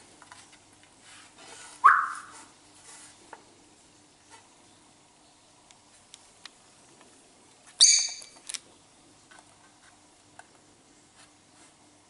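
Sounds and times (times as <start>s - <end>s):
bird chirp: 1.8s - 2.3s, 7.8s - 8.4s
bird high-pitched call: 1.8s - 2.4s, 7.8s - 8.4s.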